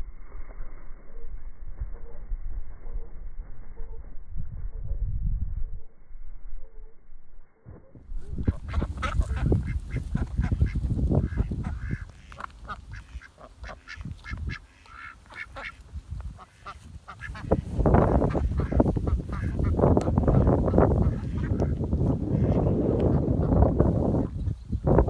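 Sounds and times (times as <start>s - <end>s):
wind rumble on microphone: 0.0s - 25.0s
ducks quacking: 8.2s - 24.4s.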